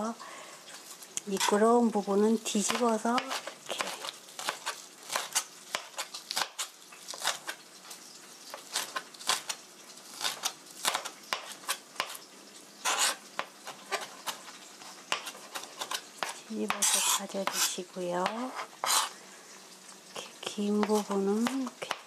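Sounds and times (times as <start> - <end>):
knife chopping on cutting board: 2.7 - 7.6, 10.2 - 12.2, 12.8 - 19.1, 20.8 - 22.0.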